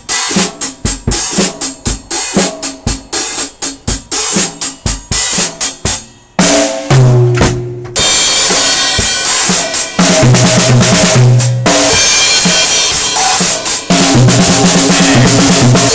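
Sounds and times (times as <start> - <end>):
drum kit played loudly: 0.0 - 15.9
cymbals crashing: 2.0 - 10.4, 11.6 - 15.9.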